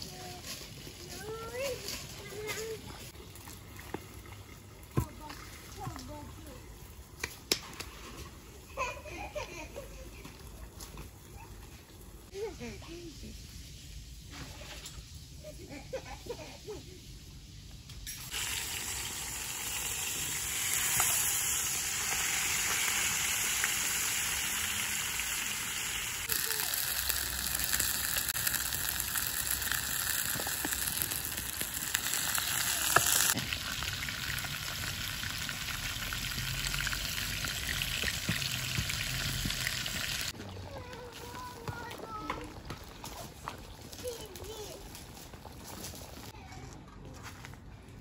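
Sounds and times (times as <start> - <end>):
fish sizzling in frying pan: 18.0 - 40.4.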